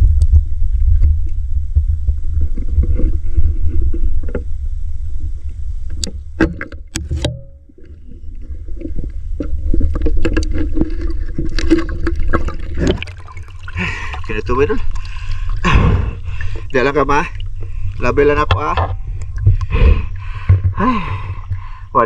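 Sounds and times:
low rumble on microphone: 0:00.0 - 0:22.0
water sloshing and splashing: 0:06.0 - 0:21.8.

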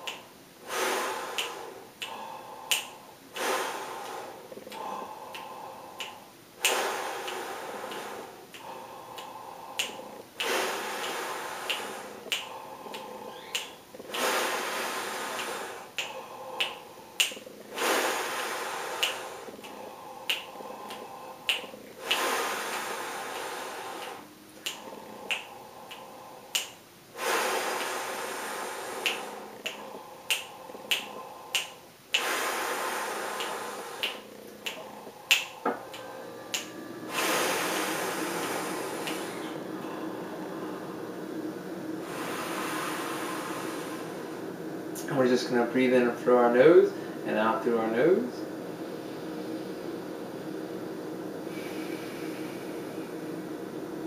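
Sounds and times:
fingers snapping a steady beat: 0:00.0 - 0:40.6
breathing in and out: 0:00.0 - 0:45.1, 0:46.8 - 0:47.3, 0:51.4 - 0:53.1.

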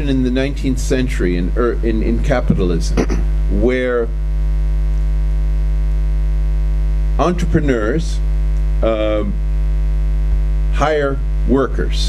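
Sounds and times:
person talking: 0:00.0 - 0:04.1, 0:07.2 - 0:08.2, 0:08.8 - 0:09.4, 0:10.8 - 0:12.0
electrical mains hum: 0:00.0 - 0:12.0.

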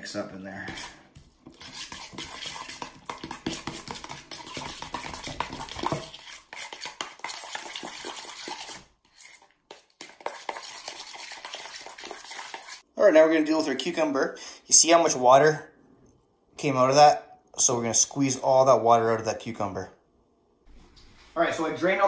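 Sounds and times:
utensil scraping metal bowl: 0:00.1 - 0:12.9.

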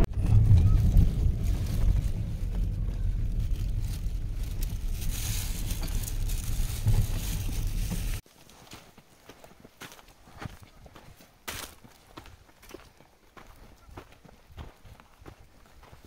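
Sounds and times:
road and engine rumble in car: 0:00.0 - 0:08.2
wind noise from open window: 0:00.0 - 0:08.2.

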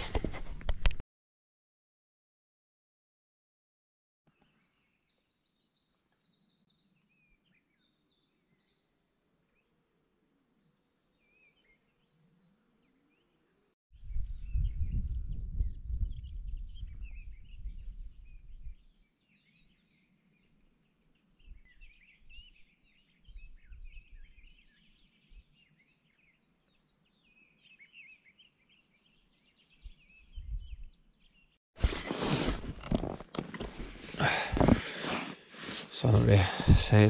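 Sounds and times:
small birds chirping: 0:04.3 - 0:37.0
wind rumbling on microphone: 0:14.0 - 0:18.9, 0:29.8 - 0:31.0, 0:36.0 - 0:37.0
loud rustling near microphone: 0:31.8 - 0:36.3.

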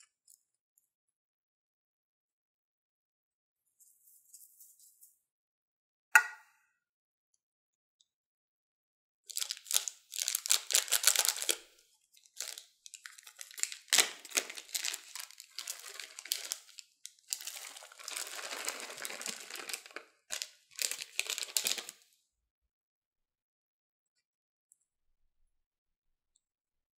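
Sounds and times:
plastic bag crinkling: 0:09.3 - 0:22.0.

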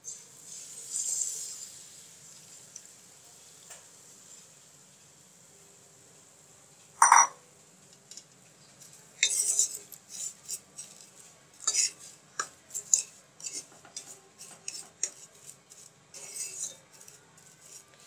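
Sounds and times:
wooden spoon scraping a pan: 0:08.6 - 0:18.0.

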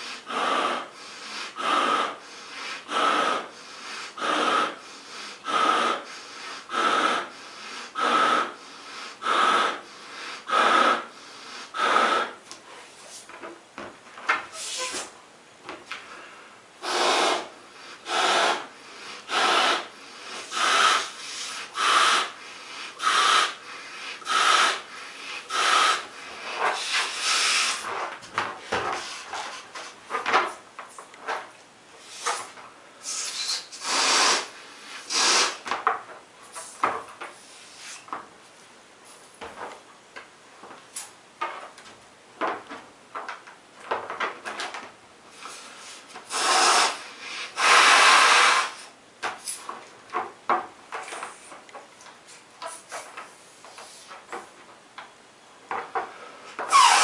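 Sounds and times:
breaths blowing up a balloon: 0:00.0 - 0:12.5, 0:16.8 - 0:28.1, 0:32.0 - 0:35.8, 0:45.3 - 0:49.0, 0:56.2 - 0:57.0.

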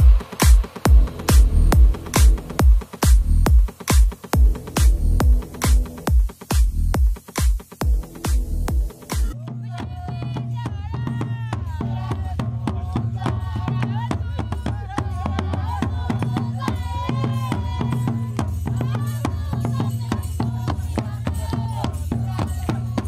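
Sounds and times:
dance music with percussion: 0:00.0 - 0:23.0
voices singing: 0:08.9 - 0:23.0.

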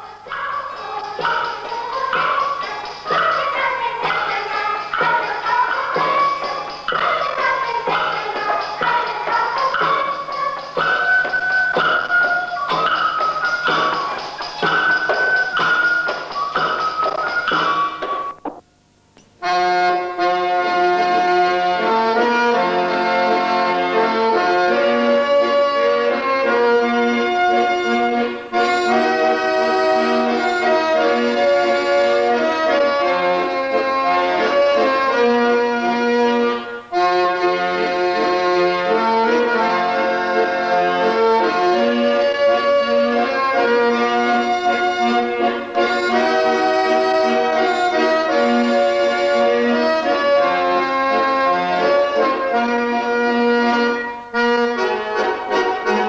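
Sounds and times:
accordion playing folk-dance tune: 0:00.0 - 0:18.6, 0:19.4 - 0:56.0.

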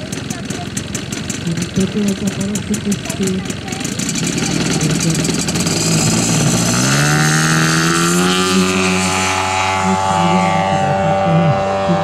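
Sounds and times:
motor spinning up: 0:00.0 - 0:12.0.

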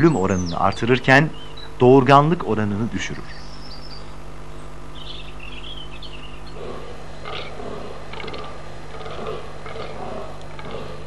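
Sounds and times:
steady low hum: 0:00.0 - 0:11.0
small bird chirps: 0:03.2 - 0:06.8
rough low deer calls: 0:03.5 - 0:11.0.

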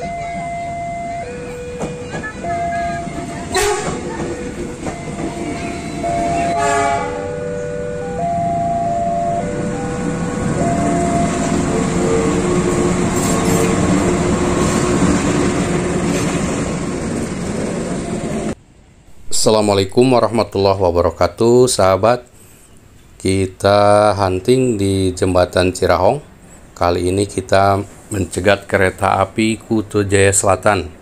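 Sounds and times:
passing train rumble: 0:00.0 - 0:20.7, 0:23.4 - 0:31.0
train horn: 0:01.3 - 0:15.2.

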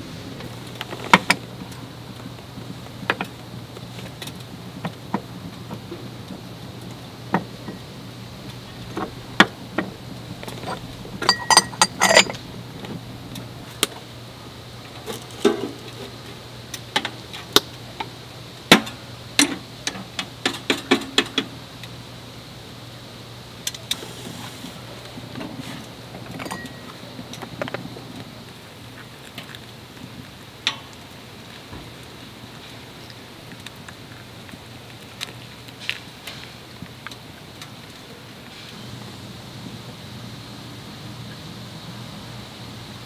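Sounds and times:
dishes clicking and knocking: 0:08.8 - 0:13.0
ringing clinks: 0:10.4 - 0:12.4, 0:26.5 - 0:26.9.

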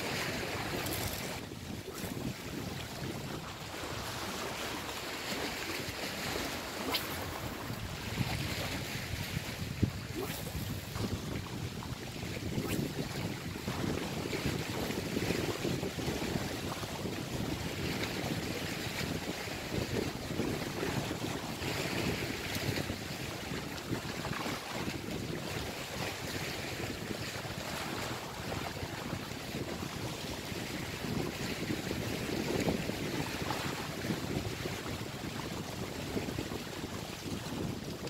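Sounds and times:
waves splashing against rocks: 0:00.0 - 0:02.5
wind buffeting microphone: 0:00.0 - 0:38.0.

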